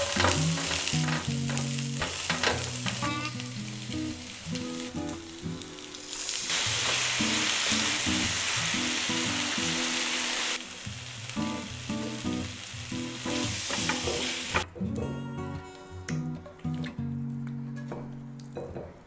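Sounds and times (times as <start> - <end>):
food sizzling in a frying pan: 0.0 - 14.6
background music: 0.0 - 19.0.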